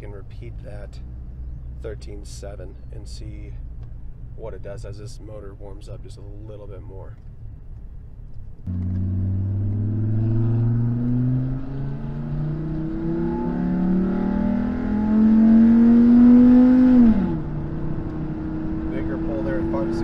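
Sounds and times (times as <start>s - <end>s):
pickup engine accelerating: 7.1s - 20.0s.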